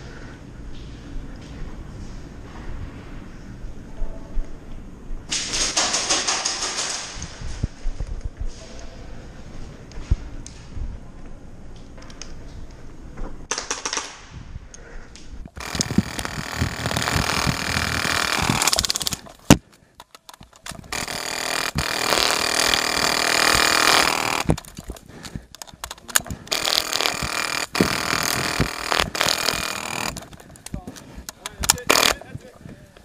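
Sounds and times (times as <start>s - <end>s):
airsoft rifles firing bursts: 15.6s - 19.5s, 20.6s - 25.0s, 25.6s - 30.6s, 31.4s - 32.3s.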